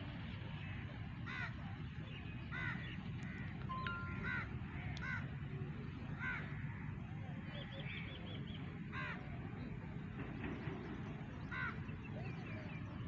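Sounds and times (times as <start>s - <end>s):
crows cawing: 1.3s - 1.6s, 2.5s - 5.3s, 6.2s - 6.9s, 8.9s - 9.2s, 11.5s - 11.8s.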